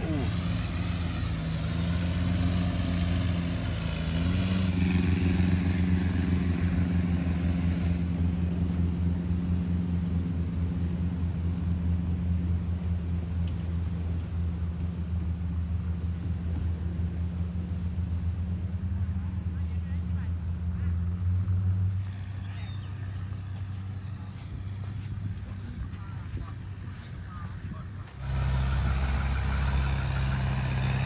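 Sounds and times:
boat engine rumbling: 0:00.0 - 0:31.0.

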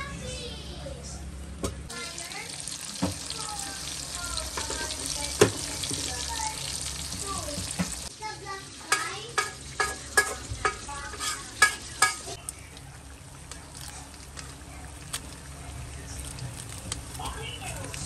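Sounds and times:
food sizzling in hot oil: 0:01.9 - 0:12.4.

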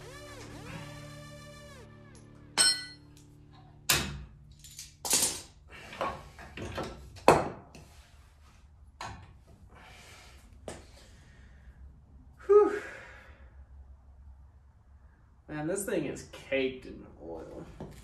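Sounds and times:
metal tools clinking and knocking: 0:02.6 - 0:03.0, 0:04.5 - 0:05.5.

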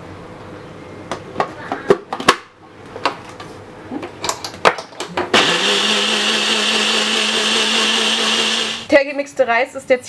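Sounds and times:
blender motor running: 0:05.3 - 0:08.9.

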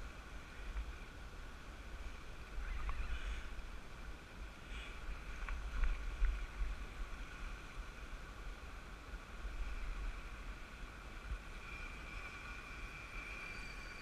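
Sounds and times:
faint ticks: 0:04.7 - 0:06.7.

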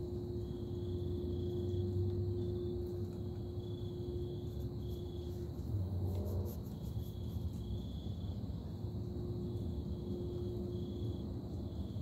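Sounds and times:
industrial equipment low hum: 0:00.0 - 0:06.5.

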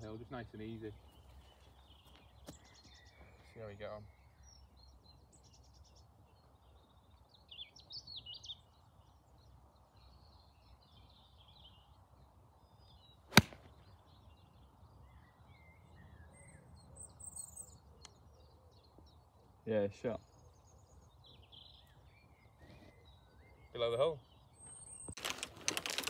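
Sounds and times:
golf club striking ball: 0:13.3 - 0:13.7.

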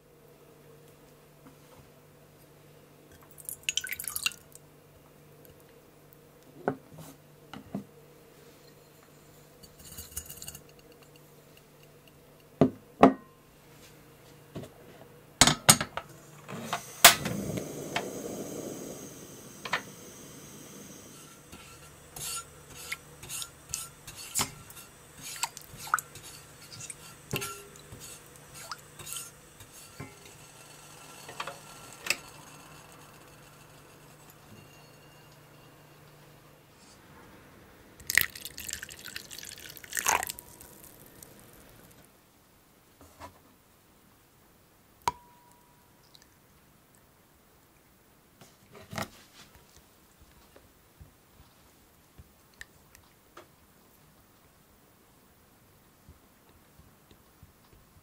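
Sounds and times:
water poured into saucepan: 0:03.3 - 0:04.5, 0:16.7 - 0:30.4, 0:38.0 - 0:42.0
bowls and pans set down: 0:15.4 - 0:18.2
utensils clinking: 0:21.3 - 0:30.4.

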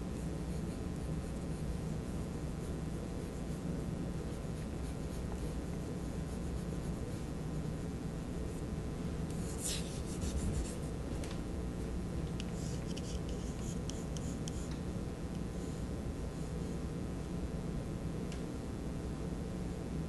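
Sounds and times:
steady low hum: 0:00.0 - 0:20.0
pencil scratching on paper: 0:00.2 - 0:01.9, 0:02.6 - 0:07.3, 0:09.4 - 0:11.0, 0:12.5 - 0:14.7.

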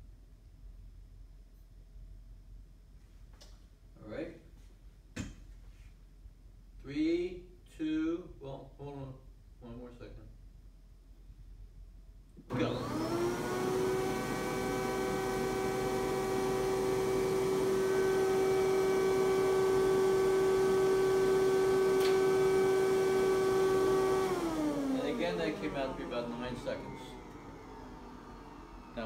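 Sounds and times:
blower motor whine: 0:12.5 - 0:29.0.

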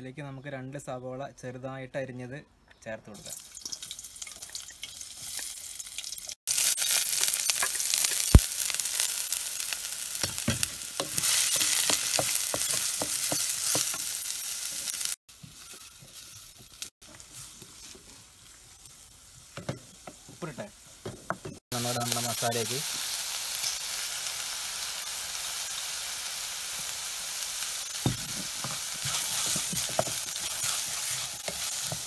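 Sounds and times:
onions sizzling in hot oil: 0:03.3 - 0:21.1, 0:21.7 - 0:32.0
metal spatula scraping a pan: 0:28.6 - 0:32.0.

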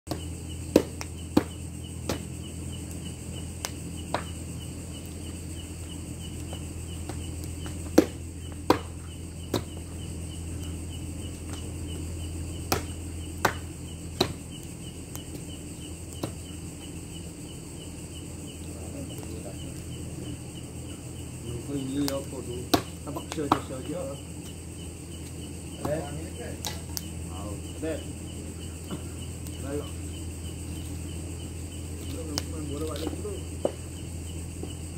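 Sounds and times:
sharp chopping knocks: 0:00.1 - 0:02.3, 0:07.1 - 0:09.8, 0:12.7 - 0:14.5, 0:22.7 - 0:23.8
crickets chirping: 0:00.1 - 0:34.9
low hum: 0:00.1 - 0:34.9.

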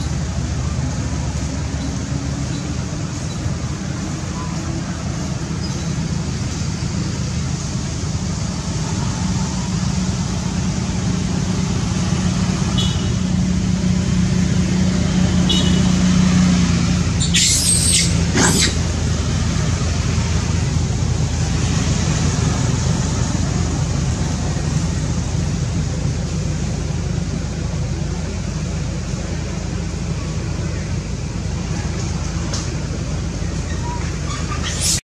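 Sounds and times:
shrill squeaks: 0:17.2 - 0:18.8.

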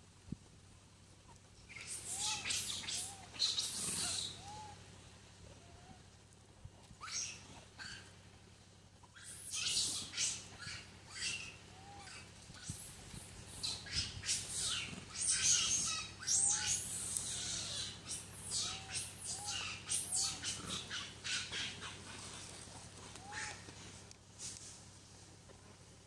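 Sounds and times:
infant monkey squealing: 0:01.7 - 0:04.8, 0:07.0 - 0:08.1, 0:09.1 - 0:22.5, 0:23.2 - 0:23.6.

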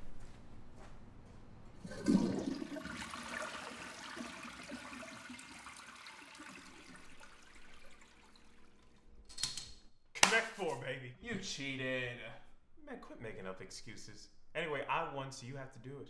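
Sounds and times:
toilet draining and refilling: 0:01.8 - 0:09.2
toilet flushing: 0:01.8 - 0:09.2.

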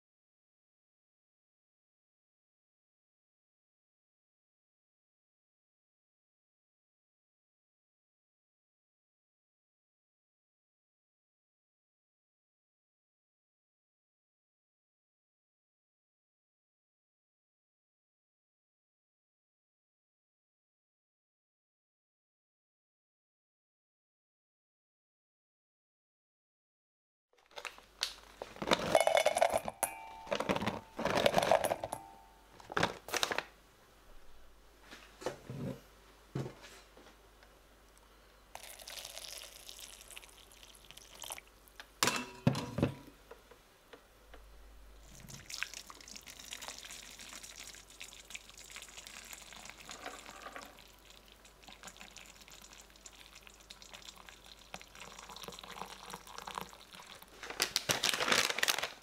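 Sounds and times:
seeds pattering into metal bowl: 0:27.4 - 0:32.2
clinks against metal bowl: 0:28.9 - 0:32.4, 0:42.0 - 0:43.0
water pouring into bowl: 0:38.6 - 0:41.5, 0:45.0 - 0:57.3.

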